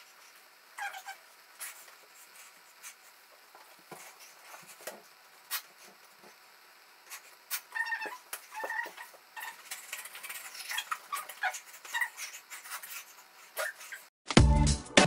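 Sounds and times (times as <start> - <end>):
short high squeaks: 7.2 - 14.1.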